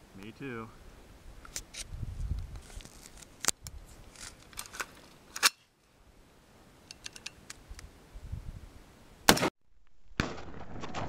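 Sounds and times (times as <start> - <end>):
metallic clicks of rifle handling: 2.6 - 5.6, 6.8 - 7.9.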